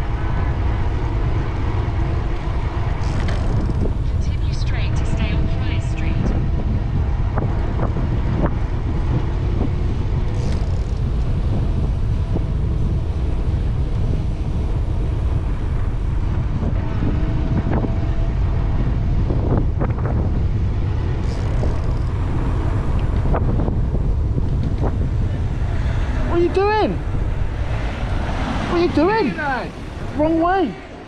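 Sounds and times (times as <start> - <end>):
road noise: 0.0 - 31.0
wind buffeting microphone: 0.0 - 31.0
bike knocks and rattles: 3.0 - 4.0, 10.2 - 11.6.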